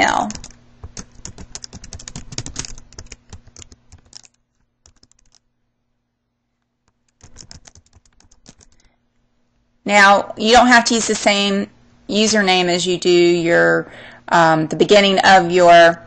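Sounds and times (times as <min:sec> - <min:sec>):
keyboard typing clicks: 0:00.3 - 0:05.4, 0:06.9 - 0:08.9.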